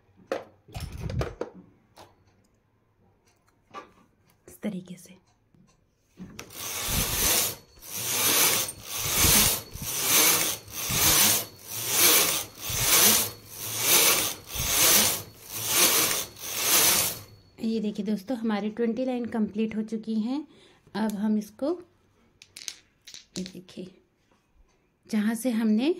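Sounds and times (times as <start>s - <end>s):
knitting machine carriage clatter: 6.3s - 17.4s.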